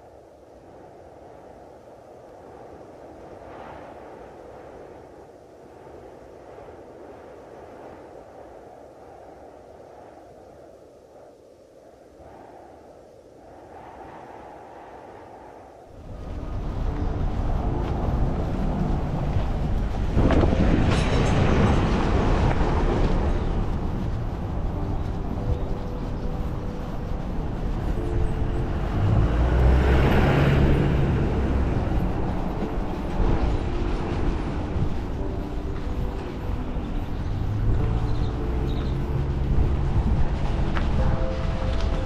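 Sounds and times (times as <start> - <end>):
street noise low rumble: 15.9 - 42.0.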